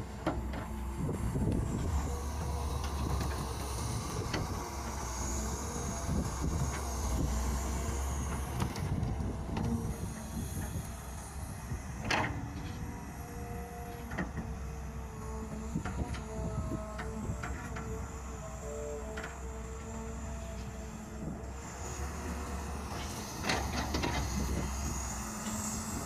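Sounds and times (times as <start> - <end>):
excavator engine drone: 0.0 - 26.0.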